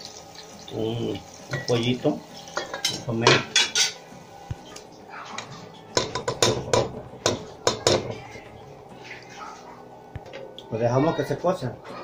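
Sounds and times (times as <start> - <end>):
utensil knocking cooking pot: 6.0 - 8.2.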